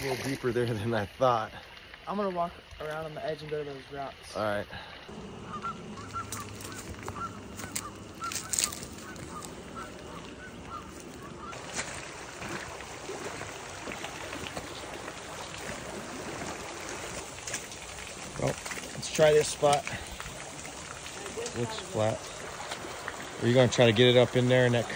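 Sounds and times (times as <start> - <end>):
creek water flowing: 0.0 - 24.9
geese honking: 5.1 - 18.5
footsteps through dry grass: 5.6 - 15.7.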